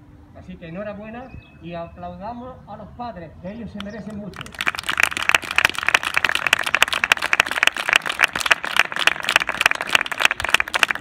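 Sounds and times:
people applauding: 0:04.1 - 0:11.0.

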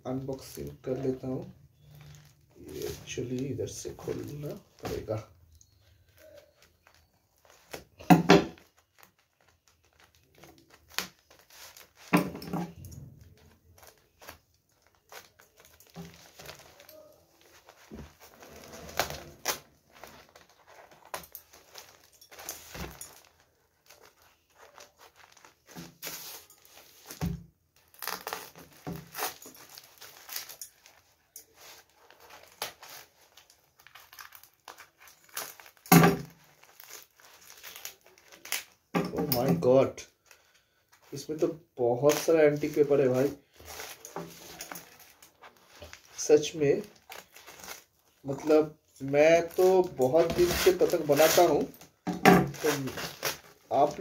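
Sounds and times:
scissors cutting wrapping: 0:04.0 - 0:39.5, 0:42.0 - 0:48.4, 0:49.0 - 0:54.0
paper and tape tearing: 0:13.7 - 0:38.8, 0:49.4 - 0:54.0.

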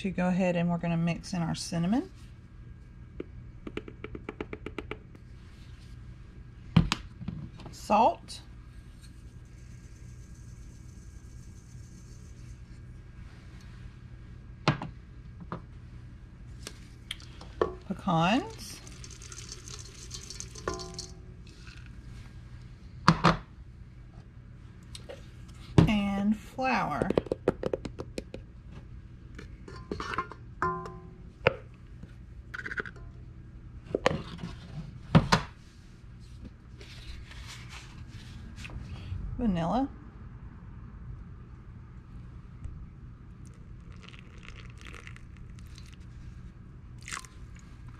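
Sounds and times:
low hum: 0:07.6 - 0:27.2, 0:28.5 - 0:34.7.

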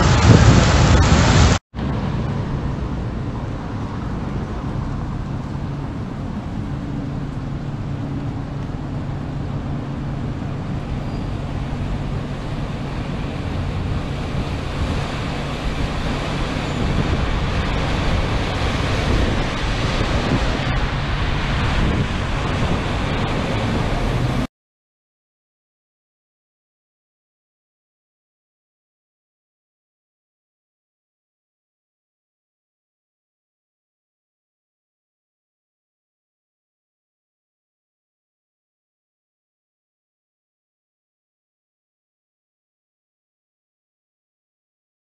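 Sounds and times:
cars driving through floodwater: 0:00.0 - 0:24.5
wind and rain rushing: 0:00.0 - 0:24.5.

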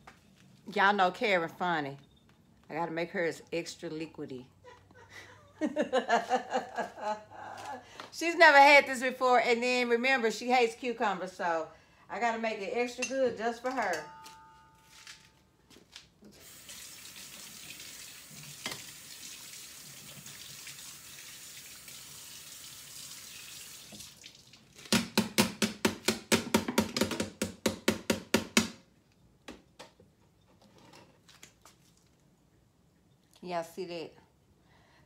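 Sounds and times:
faucet running into sink: 0:16.4 - 0:24.6.

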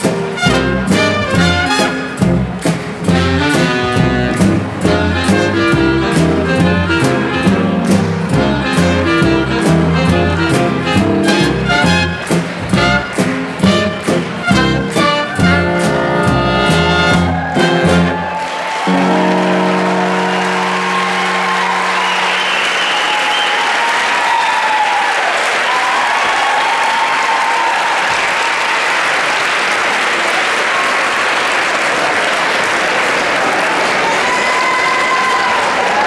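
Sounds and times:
big band swing music: 0:00.0 - 0:23.2
audience applauding: 0:06.1 - 0:36.0
audience cheering: 0:10.5 - 0:36.0.

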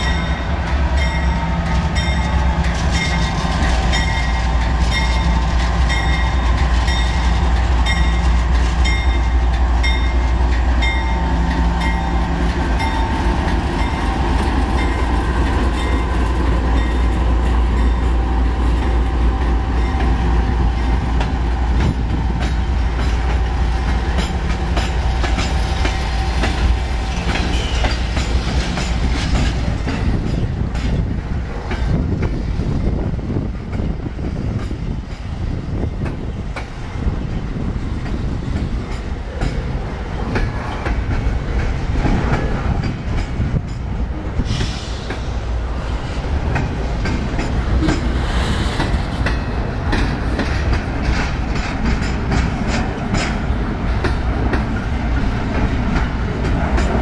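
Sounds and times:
diesel locomotive engine rumble: 0:00.0 - 0:57.0
train wheels clicking over rail joints: 0:00.0 - 0:57.0.

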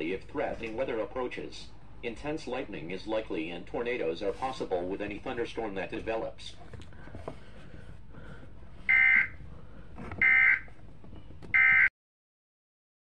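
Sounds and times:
faint radio hiss: 0:00.0 - 0:07.4.

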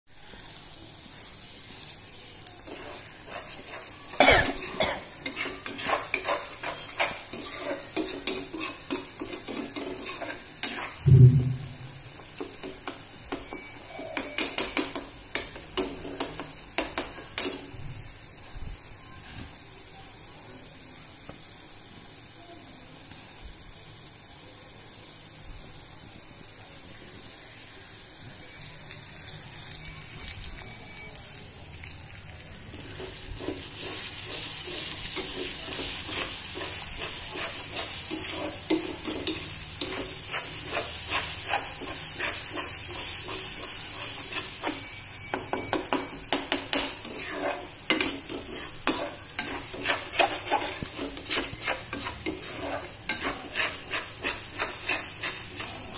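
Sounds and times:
gravy sizzling in a pan: 0:00.1 - 0:55.9
spoon scraping a pan: 0:01.8 - 0:17.7, 0:32.7 - 0:55.9.

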